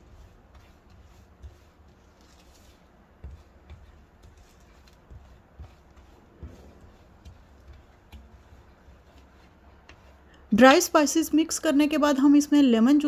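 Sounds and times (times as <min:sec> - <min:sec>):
brush scraping a plastic plate: 0:00.0 - 0:10.4.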